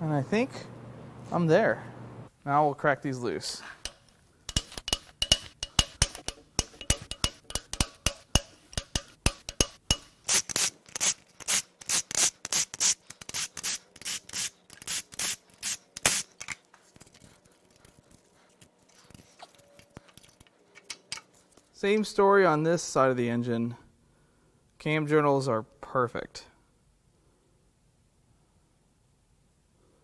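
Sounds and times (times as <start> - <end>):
hand ratchet clicking: 3.8 - 16.3.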